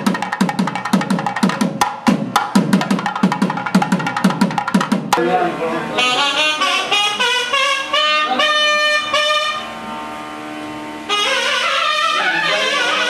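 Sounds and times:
steady drone note: 0:05.2 - 0:13.0
wind instrument melody: 0:05.3 - 0:13.0.

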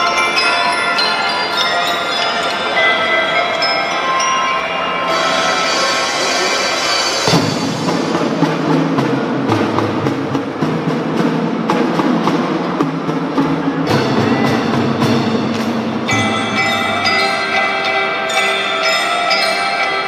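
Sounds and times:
marching drum band: 0:07.2 - 0:17.3
bell-like keyboard tones: 0:16.1 - 0:20.0.

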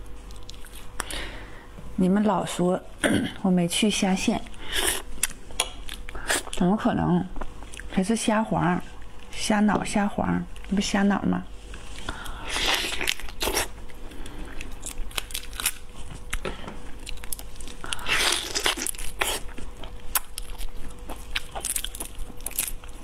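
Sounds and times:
prawn shell crunching: 0:14.7 - 0:16.0, 0:17.0 - 0:23.0.

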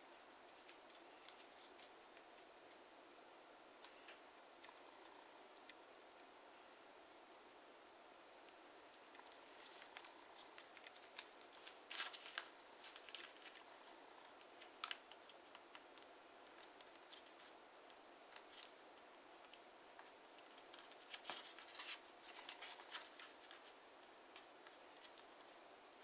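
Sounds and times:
paper crackling as creased: 0:09.0 - 0:17.6, 0:19.4 - 0:25.5.

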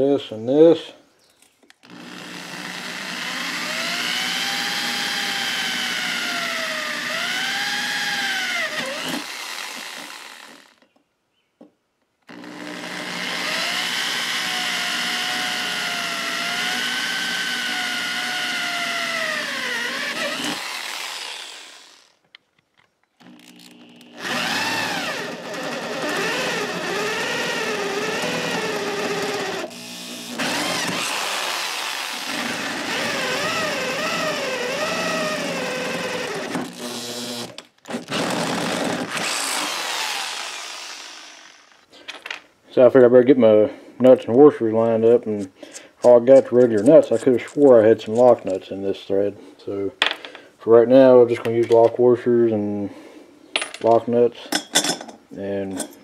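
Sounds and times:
electric drill boring through steel: 0:01.8 - 0:10.8, 0:12.3 - 0:22.2, 0:23.2 - 0:41.9.

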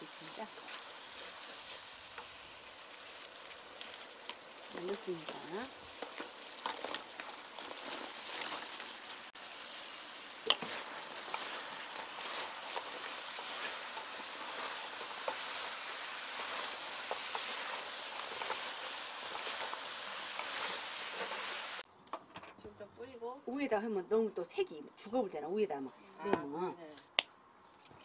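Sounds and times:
sauce sizzling in a pan: 0:00.0 - 0:21.8
wooden spatula stirring food: 0:00.0 - 0:21.8.

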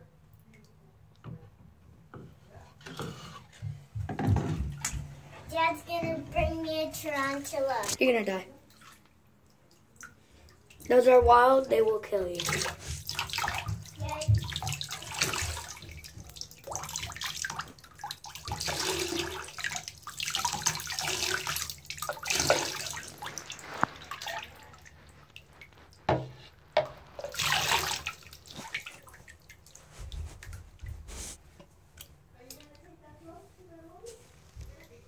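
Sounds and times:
water pouring into bathtub: 0:06.4 - 0:31.0.

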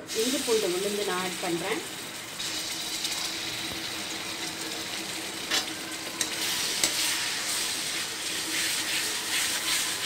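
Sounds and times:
paste sizzling in hot oil: 0:00.0 - 0:10.0.

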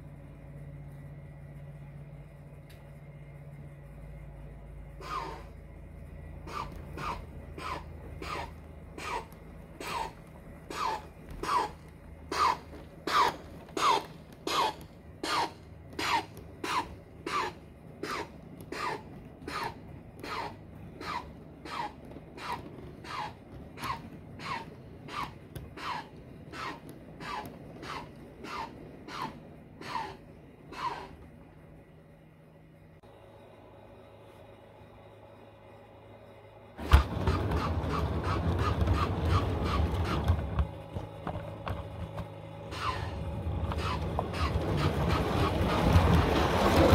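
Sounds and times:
model steam locomotive chuffing: 0:05.0 - 0:31.2, 0:36.8 - 0:40.7, 0:42.6 - 0:46.9.

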